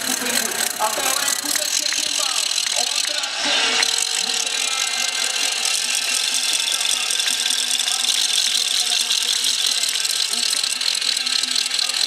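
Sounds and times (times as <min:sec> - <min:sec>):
crowd noise: 0:00.0 - 0:12.0
small engine running: 0:00.0 - 0:12.0.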